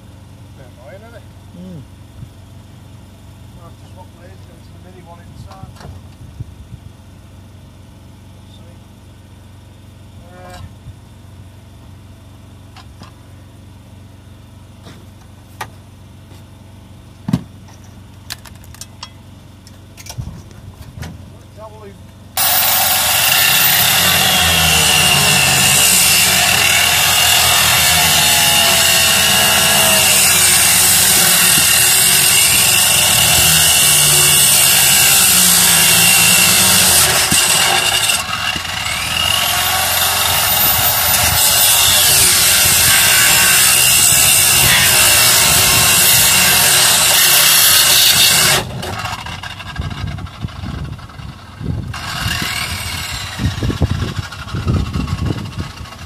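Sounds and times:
electric power tool whining: 22.4 - 56.0.

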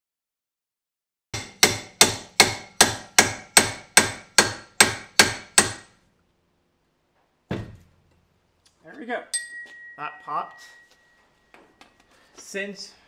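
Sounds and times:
hammer ringing on steel: 9.3 - 11.6.

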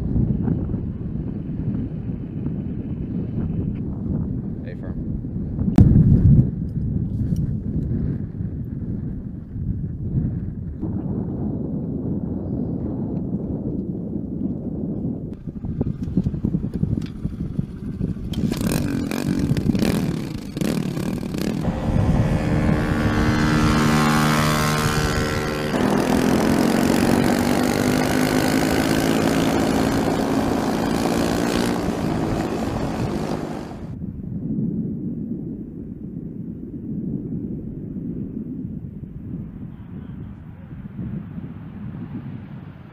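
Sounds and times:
dirt bike engine revving: 17.3 - 34.0
low rumble: 19.0 - 34.6.

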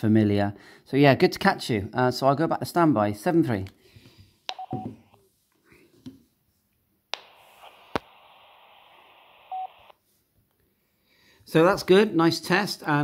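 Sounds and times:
radio click: 4.5 - 4.9, 7.1 - 9.9
radio speaker hiss: 7.2 - 10.0
short radio beep: 9.4 - 9.9.

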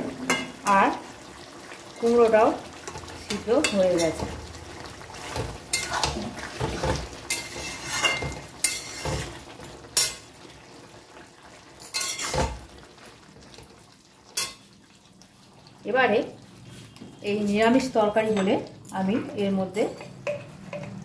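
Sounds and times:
spatula scraping metal pan: 5.2 - 9.4, 11.9 - 12.5.

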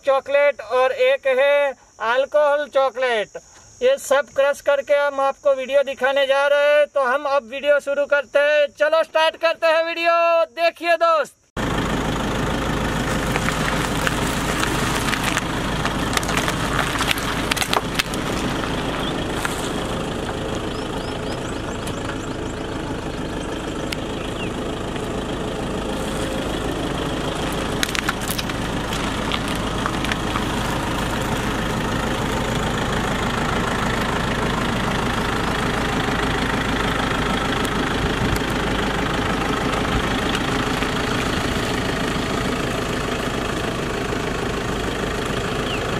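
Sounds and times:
car engine idling: 11.6 - 45.9
cardboard and wrappers crushed: 13.0 - 19.9, 27.4 - 31.8.

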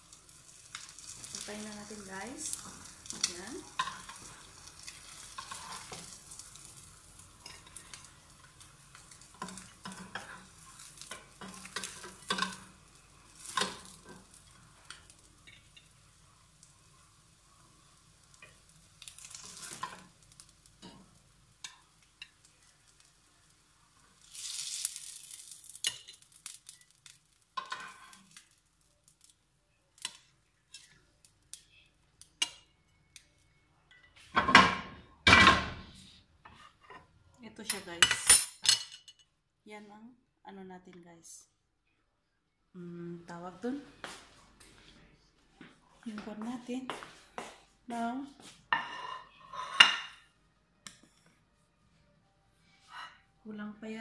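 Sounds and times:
bread sizzling in pan: 0.0 - 33.4, 47.1 - 50.4
fork and spatula scraping pan: 48.8 - 50.2.

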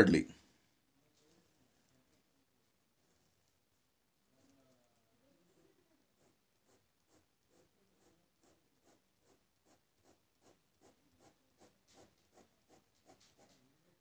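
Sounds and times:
pencil scratching on paper: 6.1 - 13.8.

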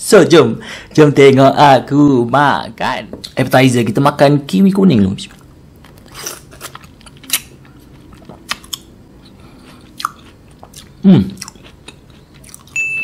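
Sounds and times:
chewing mouth clicks: 5.3 - 12.8
person grunting: 11.0 - 11.4.

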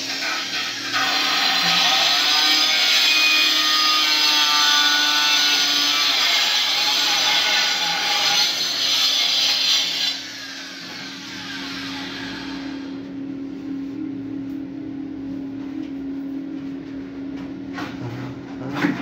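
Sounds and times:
power tool grinding: 0.0 - 13.0.

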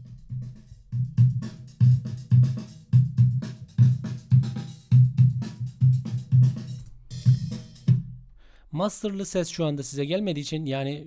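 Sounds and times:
drum kit loop: 0.0 - 8.3.

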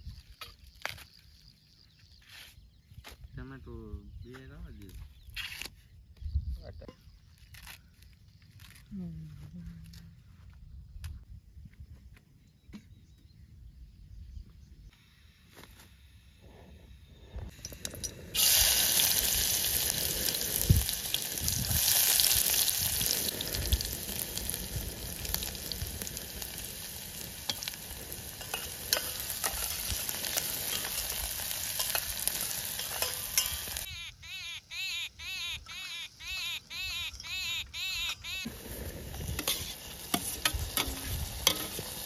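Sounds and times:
small bird chirping: 0.0 - 9.3, 27.9 - 38.5
onions sizzling in a pot: 17.6 - 33.9, 38.5 - 42.0.

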